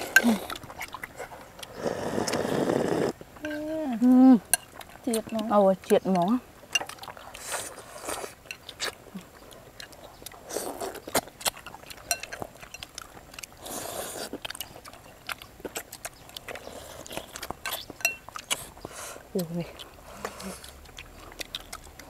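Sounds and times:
people chewing and slurping: 0:00.0 - 0:22.0
spoons clicking against bowls: 0:11.7 - 0:12.9, 0:17.6 - 0:18.3.

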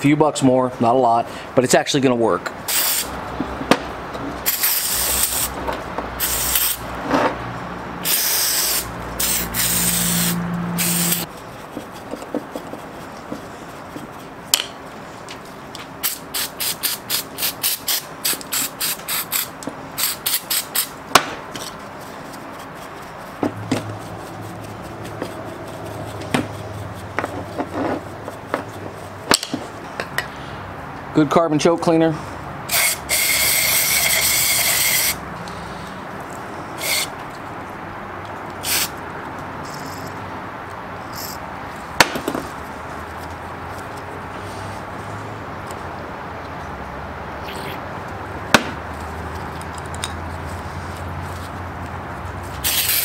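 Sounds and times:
aerosol spray hissing: 0:08.1 - 0:11.3.

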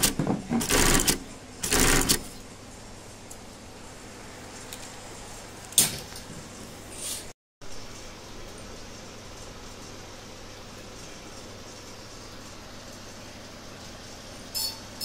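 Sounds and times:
sewing machine stitching: 0:00.0 - 0:02.4.

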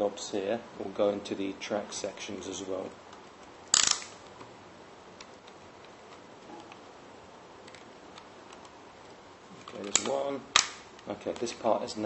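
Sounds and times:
plastic toy parts clacking: 0:03.7 - 0:04.2, 0:09.6 - 0:11.6.

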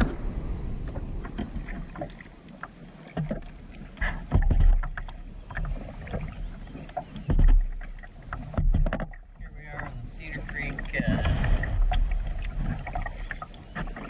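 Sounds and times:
low rumble: 0:00.0 - 0:02.4, 0:11.0 - 0:13.2
paddle splashing water: 0:00.0 - 0:14.0.

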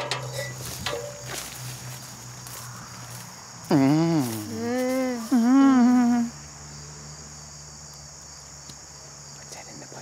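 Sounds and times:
crickets chirring: 0:00.0 - 0:10.0
human vocal cry: 0:03.7 - 0:06.3.

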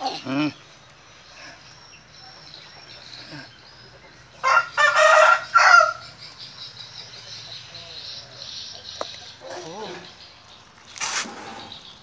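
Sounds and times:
rooster crowing: 0:04.4 - 0:06.1.

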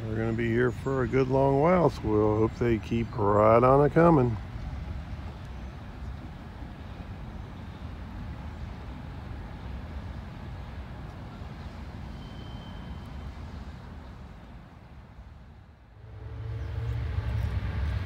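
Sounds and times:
distant vehicles rumbling: 0:00.0 - 0:18.0
faint thin tone: 0:12.1 - 0:13.4.

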